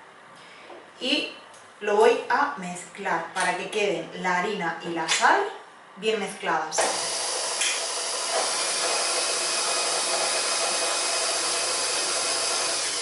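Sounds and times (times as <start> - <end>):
stand mixer motor whirring: 6.8 - 13.0.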